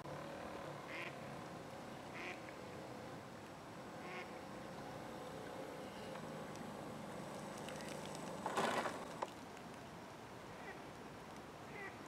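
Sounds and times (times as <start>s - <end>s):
duck quacking: 2.2s - 2.4s, 4.0s - 4.3s.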